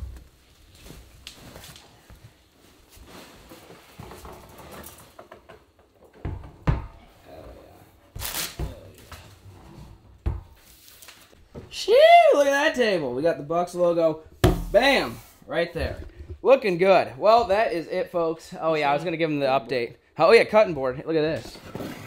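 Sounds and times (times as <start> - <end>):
heavy thumps: 14.2 - 16.5
table knocking on wooden floor: 14.4 - 14.8.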